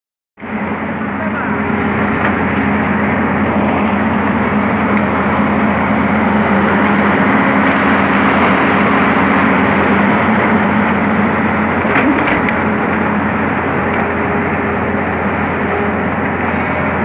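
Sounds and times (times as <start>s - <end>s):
excavator diesel engine running: 0.4s - 17.0s.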